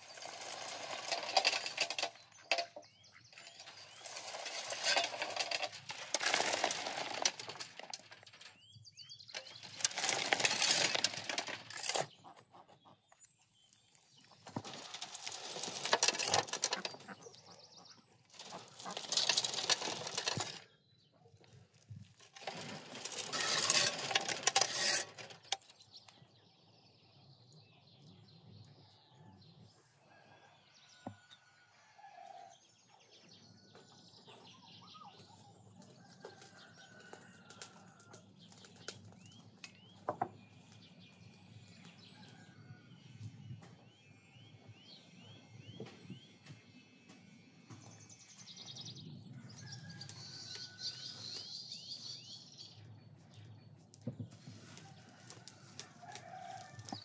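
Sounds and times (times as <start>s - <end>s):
soil falling onto earth: 3.4s - 8.5s.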